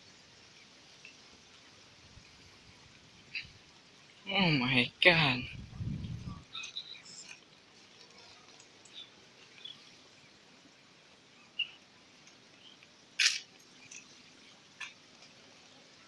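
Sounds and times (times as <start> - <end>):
outdoor background noise: 0.0 - 16.0
faint bird chirps: 5.9 - 7.4, 11.2 - 12.8.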